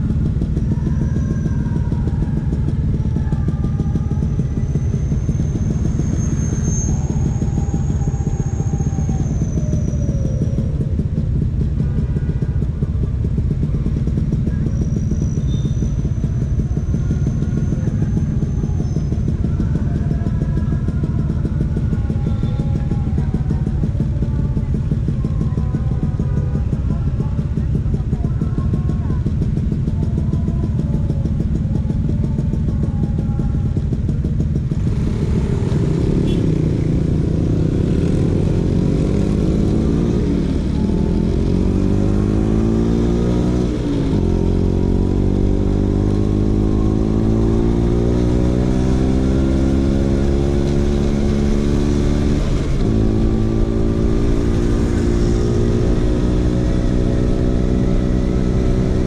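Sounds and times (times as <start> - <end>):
scooter engine changing gears: 12.6 - 59.0.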